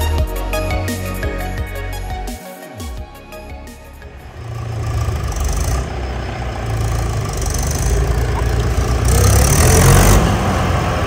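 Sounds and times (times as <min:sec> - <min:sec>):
tractor diesel engine running: 0:03.9 - 0:11.0.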